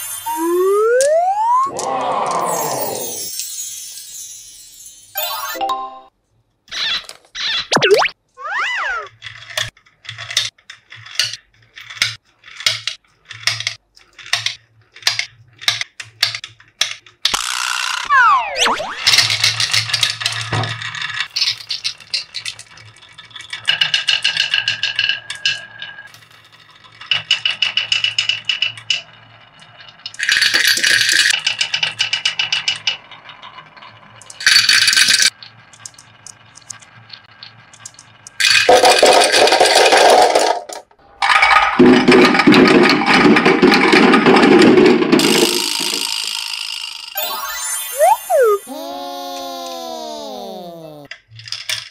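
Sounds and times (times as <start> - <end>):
marbles clicking on wooden track: 19.1 - 33.6
marbles clattering into container: 30.2 - 31.3.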